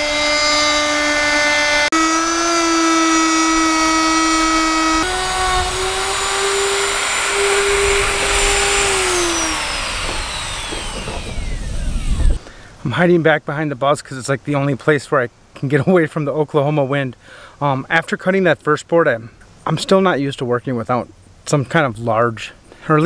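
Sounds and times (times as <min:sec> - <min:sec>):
router cutting plywood: 0:00.0 - 0:12.4.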